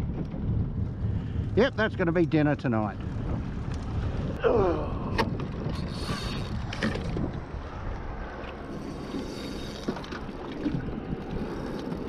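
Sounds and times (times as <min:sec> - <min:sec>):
wind on microphone: 0:00.0 - 0:12.0
water washing around boat: 0:05.4 - 0:12.0.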